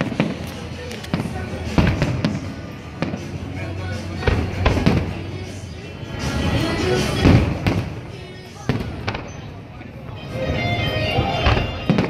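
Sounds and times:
fireworks bangs: 0.0s - 5.7s, 6.4s - 9.5s, 11.4s - 12.0s
music playing: 0.0s - 12.0s.

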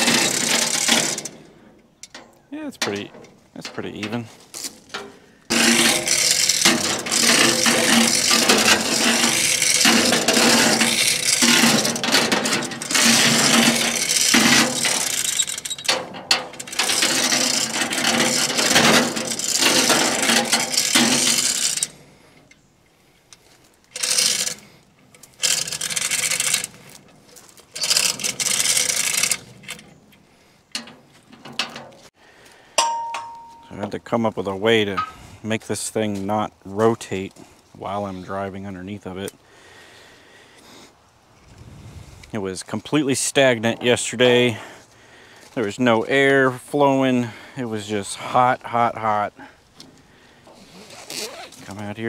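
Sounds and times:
steel chain rattling through hoist: 0.0s - 1.4s, 5.5s - 22.0s, 23.9s - 26.8s, 27.7s - 29.8s.

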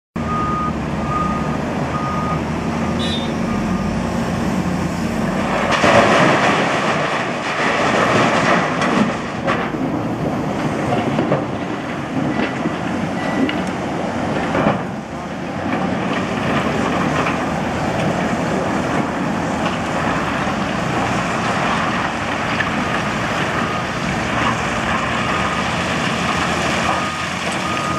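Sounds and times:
short warning beeps: 0.2s - 4.0s
excavator diesel engine: 0.2s - 27.9s.

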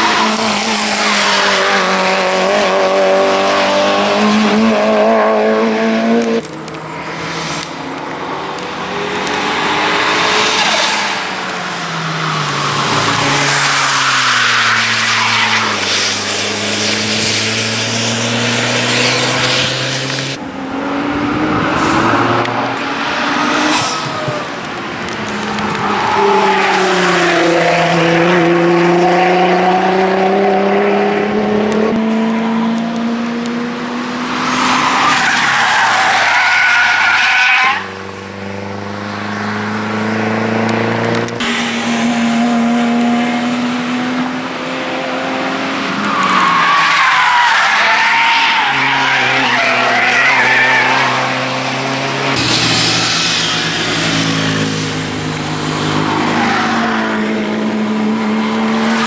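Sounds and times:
sports car engines revving: 0.0s - 59.0s
tyres squealing: 34.4s - 37.9s, 45.7s - 54.6s.

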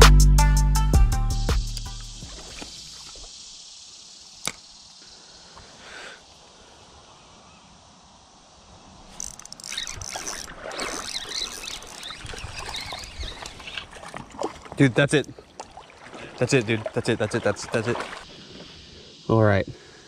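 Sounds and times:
splashing and knocking: 2.1s - 3.3s, 9.9s - 18.3s
water rushing in a creek: 2.1s - 8.0s, 8.6s - 19.0s
sharp click: 4.4s - 4.7s.

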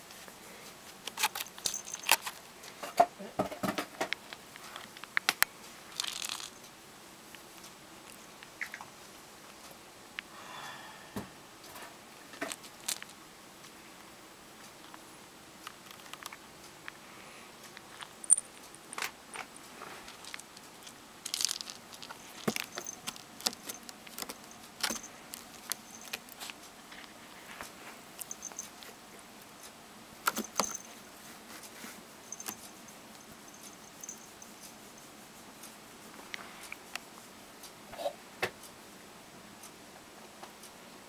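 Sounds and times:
cat claws scratching carpet: 19.3s - 29.0s.

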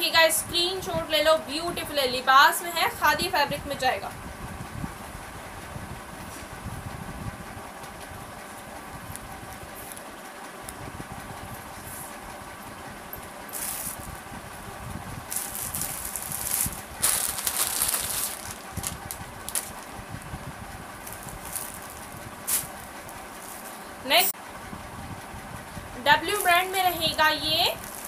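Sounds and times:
low background hum: 0.0s - 28.0s
clothes and packaging rustling: 13.5s - 14.2s, 15.2s - 20.0s, 21.0s - 23.9s, 26.3s - 28.0s.

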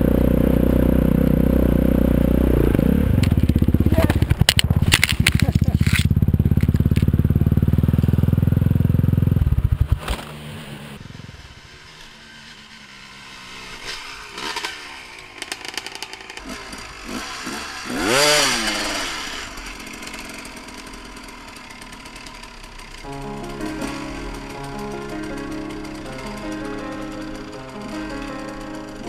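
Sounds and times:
dirt bike engine: 0.0s - 29.0s
motorbikes idling and revving: 0.0s - 29.0s.

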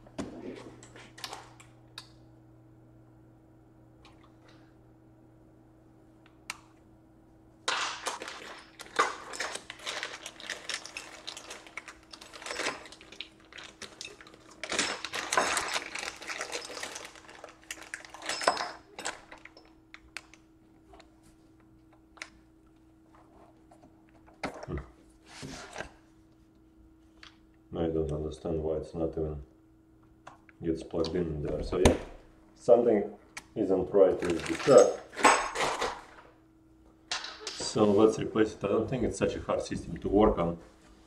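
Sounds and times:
plastic bag crinkling: 8.1s - 18.4s, 34.1s - 35.1s.

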